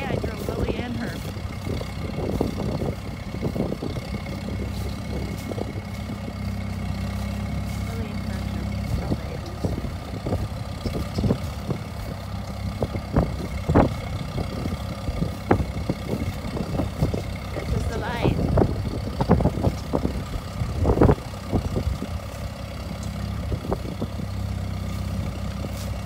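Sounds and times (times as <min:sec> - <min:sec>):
tractor engine under load: 0:00.0 - 0:26.0.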